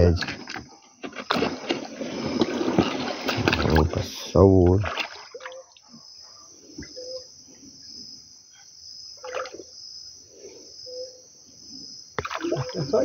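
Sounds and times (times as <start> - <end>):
canoe handling sounds: 0.0 - 6.1, 12.2 - 13.0
faint water sounds: 0.0 - 7.3, 9.2 - 9.8, 12.2 - 13.0
high-pitched insect chorus: 0.0 - 13.0.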